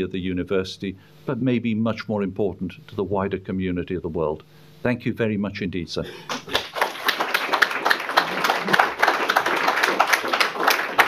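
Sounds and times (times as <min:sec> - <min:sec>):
audience applauding: 0:06.3 - 0:11.0.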